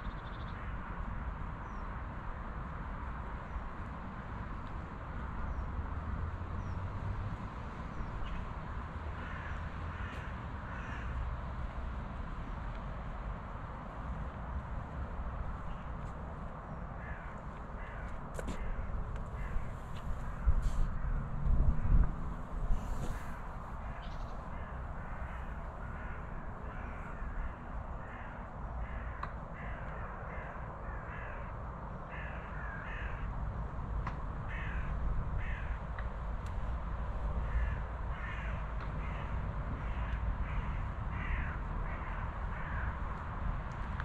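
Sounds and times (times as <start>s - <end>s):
birds calling: 22.8s - 31.4s.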